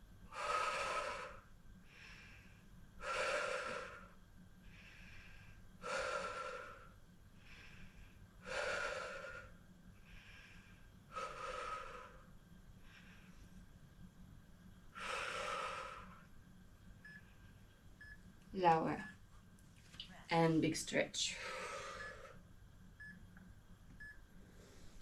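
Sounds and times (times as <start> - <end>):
woman inhaling quietly: 21.4 - 22.4.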